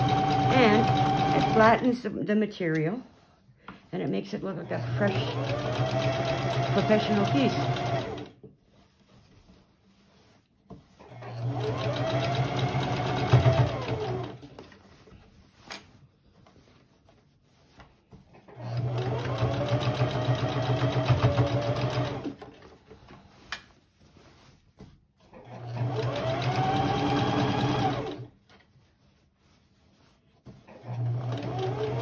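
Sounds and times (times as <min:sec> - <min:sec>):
electric sewing machine running: 0:00.0 - 0:01.7, 0:04.8 - 0:08.3, 0:11.1 - 0:14.4, 0:18.5 - 0:22.4, 0:25.5 - 0:28.3, 0:30.8 - 0:32.0.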